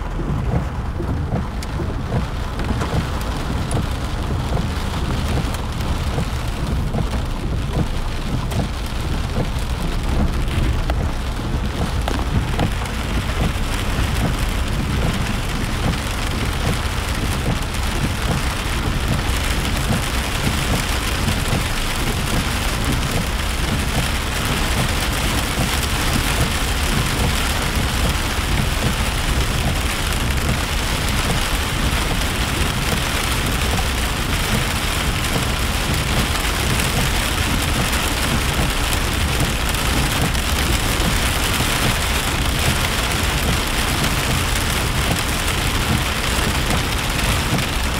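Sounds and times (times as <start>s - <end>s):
car rumble and tyres on wet road: 0.0s - 47.9s
rain on a car roof: 0.0s - 47.9s.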